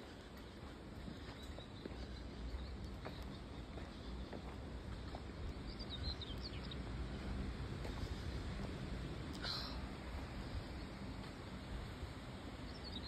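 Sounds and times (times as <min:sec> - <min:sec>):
footsteps on gravel: 0:00.0 - 0:05.8
wind rumble on microphone: 0:00.0 - 0:13.0.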